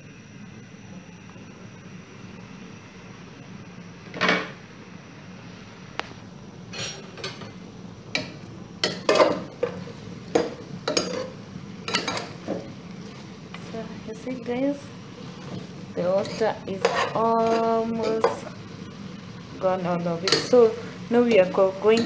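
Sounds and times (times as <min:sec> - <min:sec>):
faint simmering hiss: 0:00.0 - 0:22.0
metal pot clanking: 0:08.2 - 0:11.3, 0:11.9 - 0:12.6
metal spoon scraping a pot: 0:10.9 - 0:12.3, 0:16.2 - 0:18.5.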